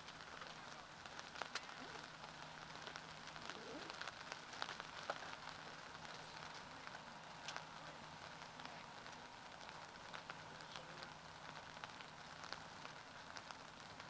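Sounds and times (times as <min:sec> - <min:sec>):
low steady hum: 0:00.0 - 0:14.0
open field background noise: 0:00.0 - 0:14.0.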